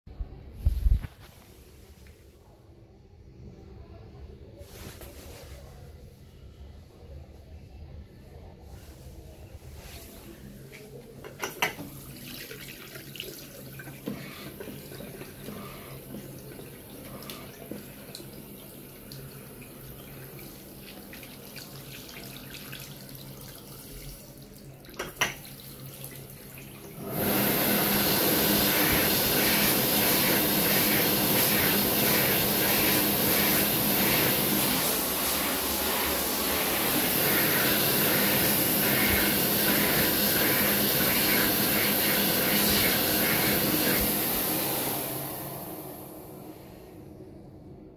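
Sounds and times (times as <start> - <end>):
hand dryer blowing air: 13.2 - 19.4, 26.9 - 46.9.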